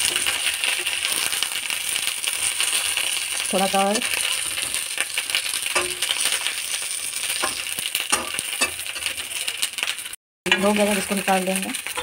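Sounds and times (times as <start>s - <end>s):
eggplants sizzling in oil: 0.0s - 12.0s
metal spatula scraping pan: 4.0s - 6.5s.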